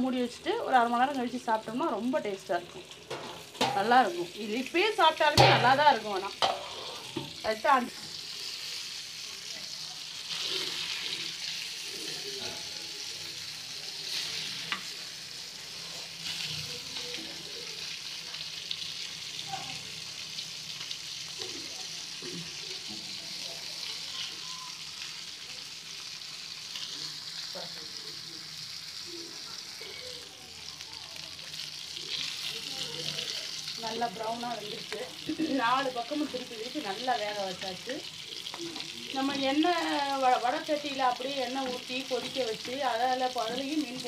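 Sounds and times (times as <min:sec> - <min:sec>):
fish sizzling in oil: 0:00.0 - 0:44.0
metal spatula scraping: 0:05.4 - 0:07.3, 0:10.3 - 0:13.4.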